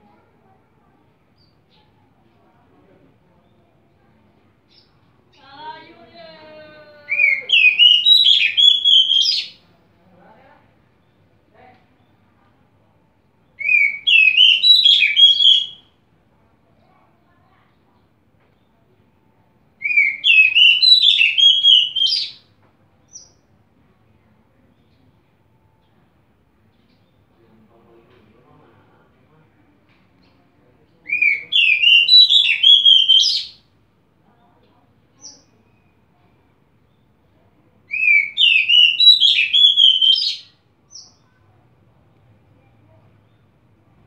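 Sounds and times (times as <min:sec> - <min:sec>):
bird singing whistled notes: 0:07.1 - 0:09.6, 0:13.6 - 0:15.8, 0:19.8 - 0:22.4, 0:31.1 - 0:33.6, 0:37.9 - 0:41.2.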